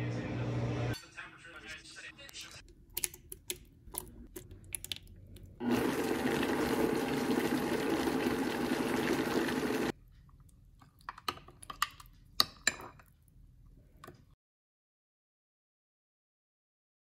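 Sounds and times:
blender running: 5.6 - 9.9.

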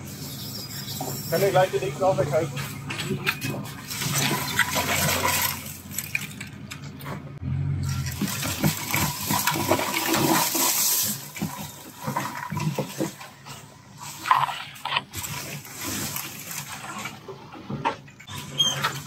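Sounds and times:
engine low hum: 0.0 - 18.5
branches scraping along car body: 0.3 - 7.3, 8.0 - 19.0.

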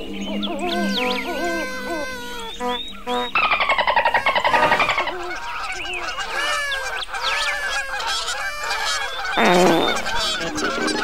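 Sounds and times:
fast pulsing buzz: 0.0 - 5.4
honking trumpet-like bird calls: 0.0 - 11.0.

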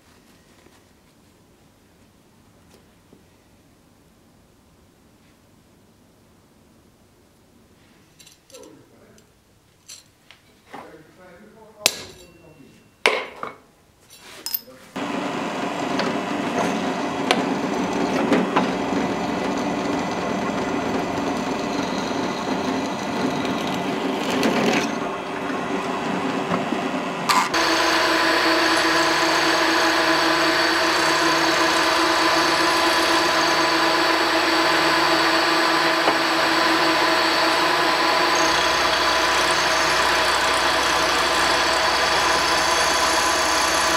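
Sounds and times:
drill press drilling steel: 15.0 - 43.9
milling machine whine: 15.0 - 43.9.

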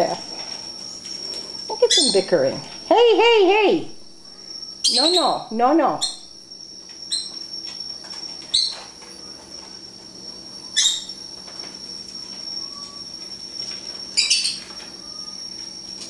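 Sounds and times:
birds chirping: 0.0 - 7.7, 8.4 - 9.4, 10.7 - 11.2, 14.1 - 15.4.

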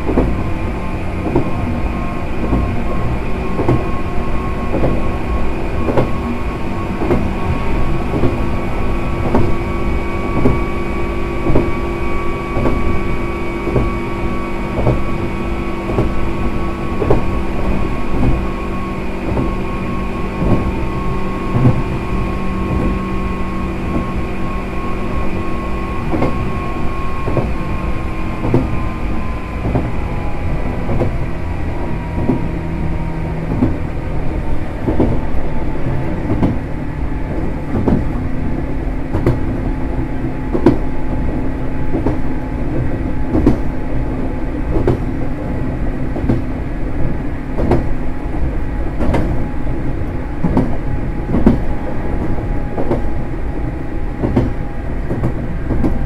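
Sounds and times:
electric train motor whine: 0.0 - 56.0
train rumble: 0.0 - 56.0
wheels clicking over rail joints: 36.1 - 56.0.

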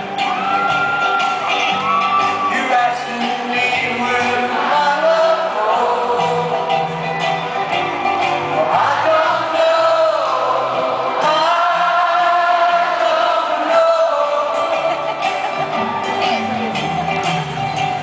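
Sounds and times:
live rock band: 0.0 - 18.0
man singing a slow ballad: 2.4 - 6.8, 8.6 - 14.8.

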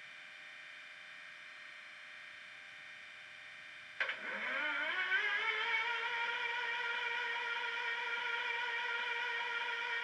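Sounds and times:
model diesel engine sound: 4.0 - 10.0.

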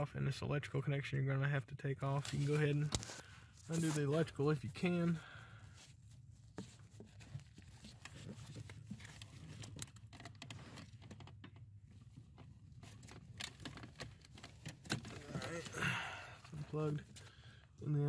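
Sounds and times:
faint clicks and rustling: 5.8 - 17.6.

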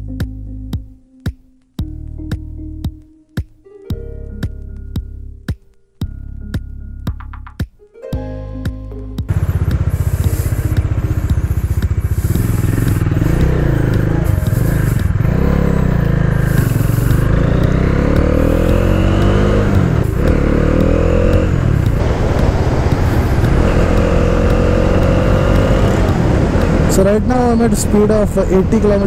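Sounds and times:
motorcycle engine accelerating: 9.3 - 29.0
wind rushing over microphone: 21.0 - 29.0.

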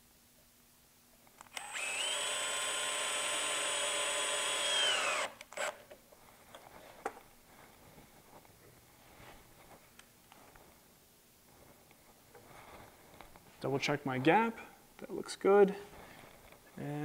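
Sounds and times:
cordless drill driving screw: 1.4 - 5.8.

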